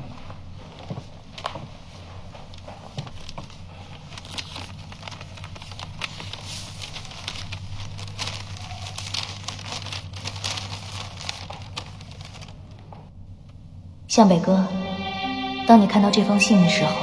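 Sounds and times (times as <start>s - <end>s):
paper rustling and crinkling: 0.1s - 13.1s
envelope tearing: 3.9s - 12.6s.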